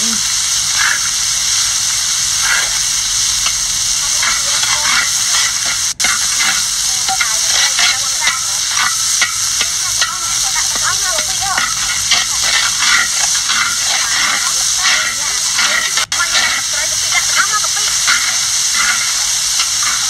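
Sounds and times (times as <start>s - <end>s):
seasonings sizzling in hot oil: 0.0s - 20.0s
metal spoon scraping a wok: 0.4s - 20.0s.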